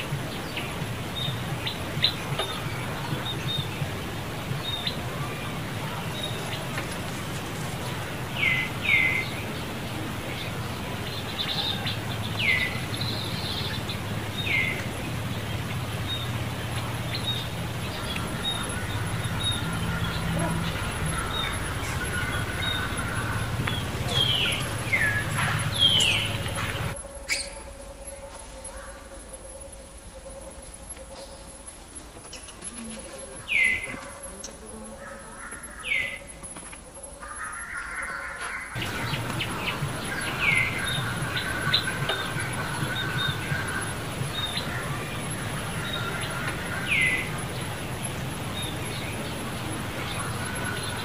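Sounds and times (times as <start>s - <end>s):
bird chirps: 0.0s - 29.1s, 32.3s - 51.0s
insect whine: 0.0s - 51.0s.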